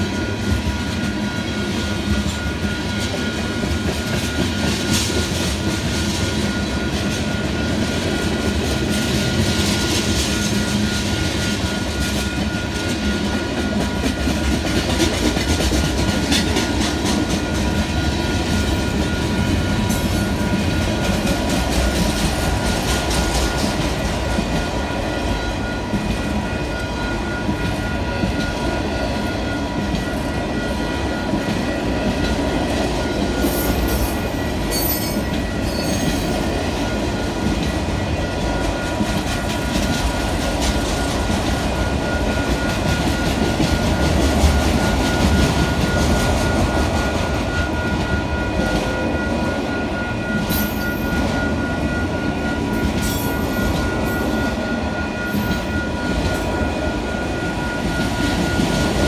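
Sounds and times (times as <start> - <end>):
train wheels rumbling and clattering: 0.0 - 59.0
high wheel squeals: 33.3 - 36.6.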